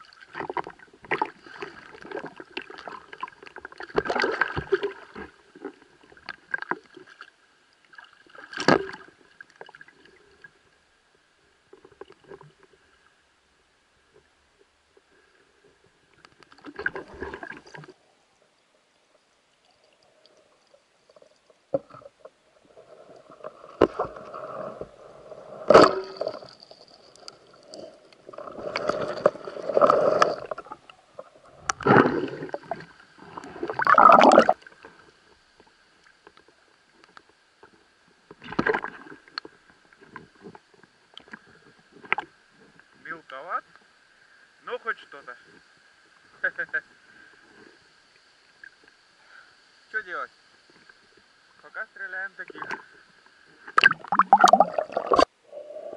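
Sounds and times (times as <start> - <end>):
water sloshing and gurgling: 0.0 - 10.9, 15.0 - 42.9, 52.5 - 55.9.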